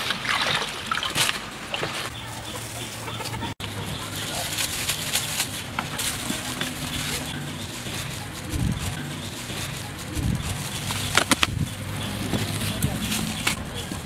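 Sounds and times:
dry grasshoppers rustling in metal bowl: 3.7s - 13.6s.

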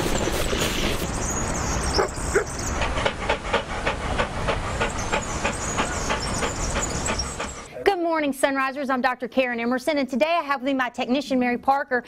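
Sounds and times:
dog sniffing: 2.0s - 7.8s.

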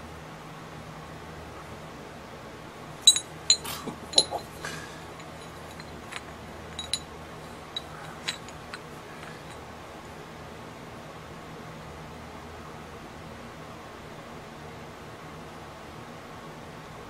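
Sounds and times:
steady background hiss: 0.0s - 17.0s
metal bars clinking: 3.0s - 9.6s.

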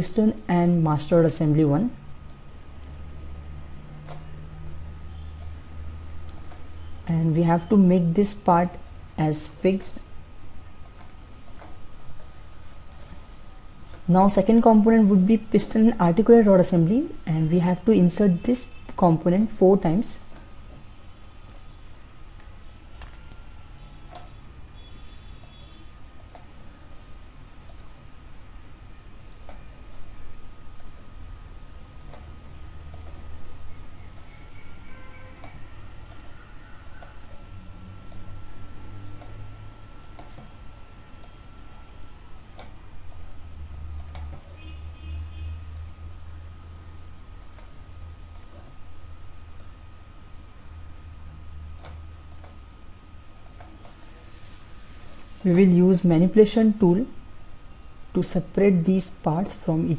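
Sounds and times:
faint high whine: 0.0s - 59.9s
low hum: 0.0s - 59.9s
computer mouse clicks: 4.0s - 4.8s, 6.2s - 6.7s, 10.8s - 12.3s, 25.4s - 26.5s, 27.6s - 28.0s, 29.3s - 29.7s, 30.7s - 31.0s, 32.0s - 32.3s, 32.9s - 33.3s, 35.4s - 37.4s, 38.1s - 38.4s, 39.0s - 39.4s, 40.0s - 40.5s, 42.5s - 43.4s, 44.0s - 44.5s, 45.7s - 46.0s, 47.4s - 47.7s, 48.3s - 48.8s, 51.7s - 52.6s, 53.4s - 54.3s
microphone hiss: 37.3s - 59.9s.

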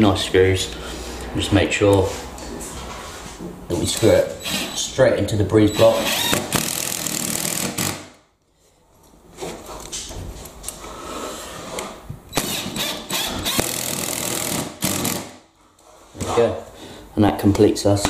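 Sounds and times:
power drill driving a screw: 4.4s - 4.8s, 5.8s - 8.1s, 12.3s - 15.3s.

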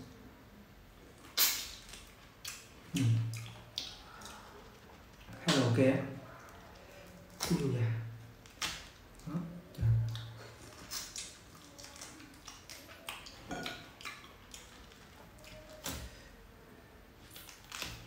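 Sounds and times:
pineapple pulled apart by hand: 17.2s - 18.0s.

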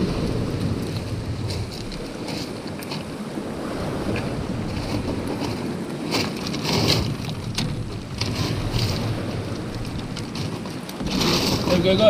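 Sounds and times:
waves washing on shingle: 0.0s - 12.0s
wind buffeting microphone: 0.0s - 12.0s.

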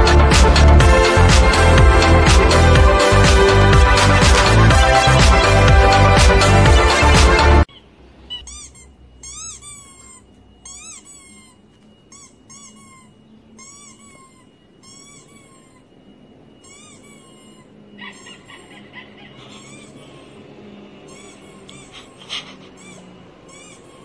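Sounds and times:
squeaky toy squeaks: 4.0s - 24.0s.

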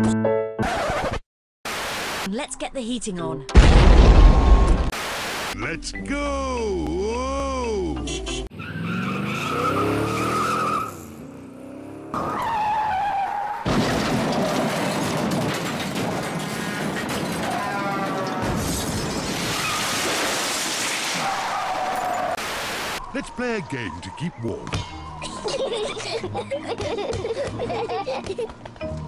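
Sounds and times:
music: 0.0s - 0.6s, 24.7s - 29.0s
cartoon car engine: 7.6s - 14.1s
tyres skidding: 8.1s - 22.4s.

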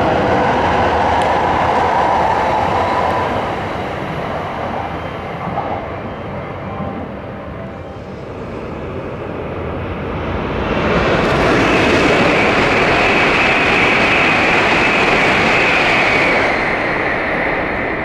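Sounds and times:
high-speed train rushing past: 0.0s - 18.0s.

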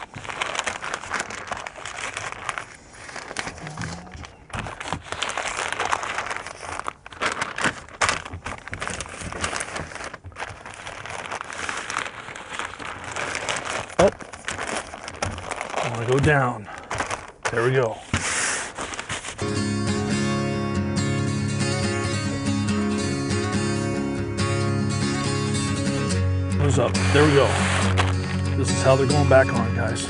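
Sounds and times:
paper crinkling and rustling: 0.0s - 19.4s, 26.6s - 30.0s.

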